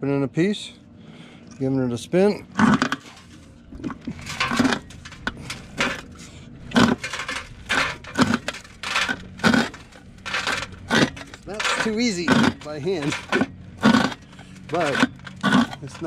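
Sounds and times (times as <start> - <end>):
jaw crusher cracking rock: 2.6 - 16.0.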